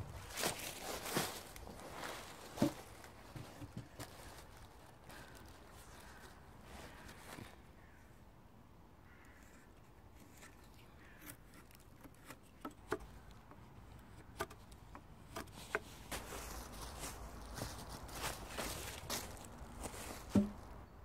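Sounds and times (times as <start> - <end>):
footsteps in dry leaves: 0.0 - 7.6, 15.6 - 20.6
knife clicking on wooden poles: 10.4 - 15.9.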